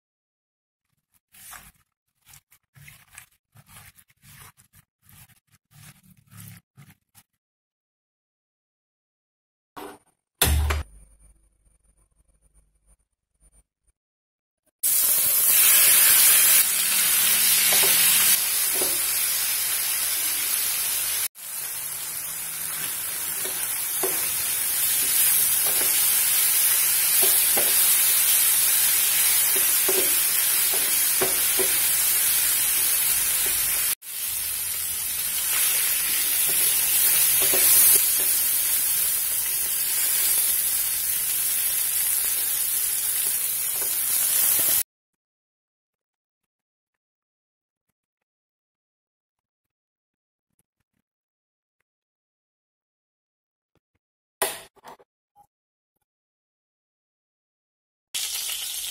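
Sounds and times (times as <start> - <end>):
chicken sizzling in hot oil: 14.8 - 44.8, 58.2 - 58.9
wooden spatula knocking pan: 29.5 - 31.9.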